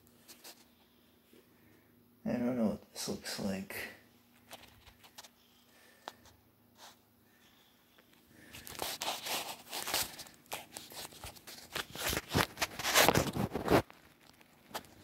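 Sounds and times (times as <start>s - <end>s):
phone handling rubbing and scraping: 8.5s - 14.0s.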